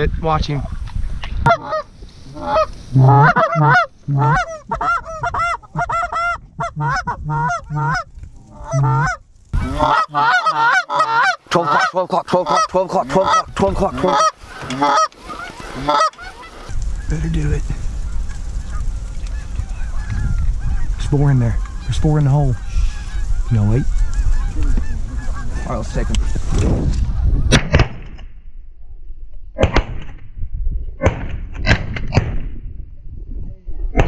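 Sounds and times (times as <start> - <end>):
goose call clucks and honks: 1.5 - 16.7.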